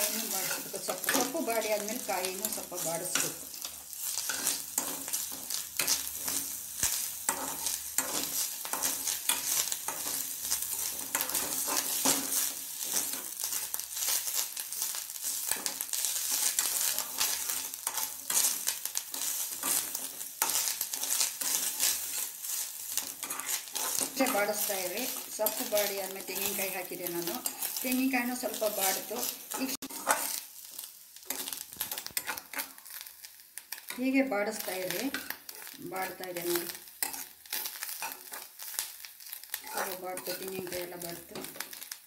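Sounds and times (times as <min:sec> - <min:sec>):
metal spatula scraping pan: 0:00.0 - 0:06.6, 0:07.2 - 0:30.5, 0:31.3 - 0:32.8, 0:37.0 - 0:38.8
greens sizzling in ghee: 0:00.0 - 0:42.0.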